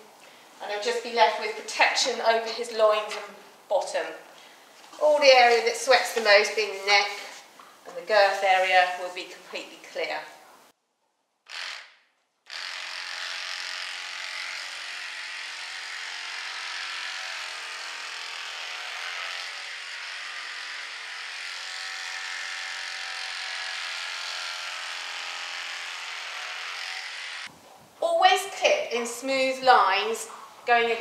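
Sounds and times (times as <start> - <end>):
electric horse clippers buzzing: 11.5 - 27.5.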